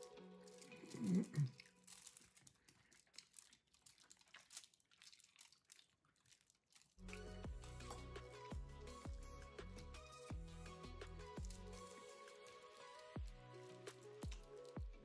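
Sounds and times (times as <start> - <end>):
background music: 0.0 - 2.2, 7.0 - 15.0
crispy roast pork tearing: 0.0 - 8.0, 11.3 - 15.0
aluminium foil crinkling: 0.0 - 8.1, 11.2 - 15.0.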